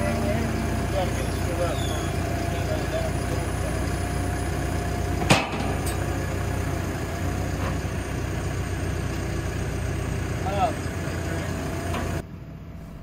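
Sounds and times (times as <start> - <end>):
diesel engine running at low revs: 0.0 - 13.0.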